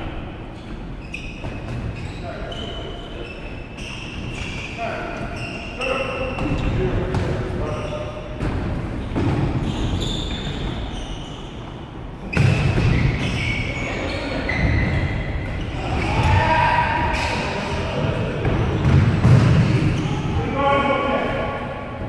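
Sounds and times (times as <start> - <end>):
players shouting: 15.6 - 18.0.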